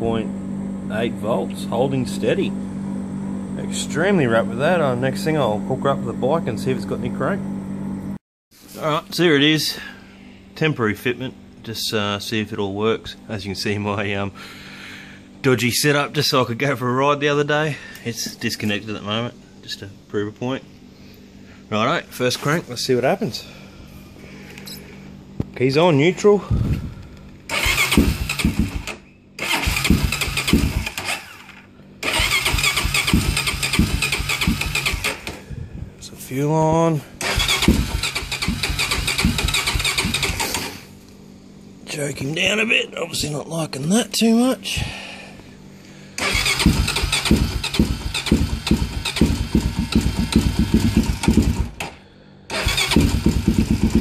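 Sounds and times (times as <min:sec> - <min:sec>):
electric starter cranking engine: 0:26.9 - 0:35.5, 0:37.2 - 0:41.0, 0:46.2 - 0:54.0.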